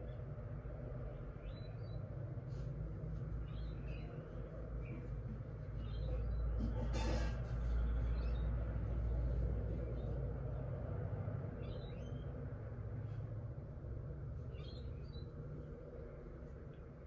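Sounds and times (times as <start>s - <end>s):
birds chirping: 1.0s - 10.8s, 11.4s - 13.2s, 14.1s - 17.0s.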